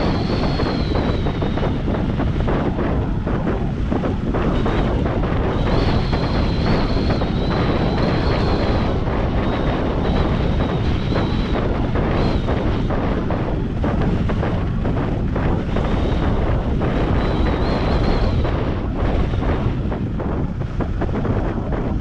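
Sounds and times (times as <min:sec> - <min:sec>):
wind rushing over microphone: 0:00.0 - 0:22.0
faint high whistle: 0:05.7 - 0:11.6.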